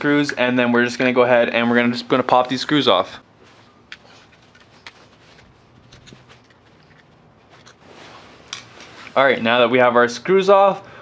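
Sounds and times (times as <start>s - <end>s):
screwdriver scraping screws: 3.9s - 7.8s.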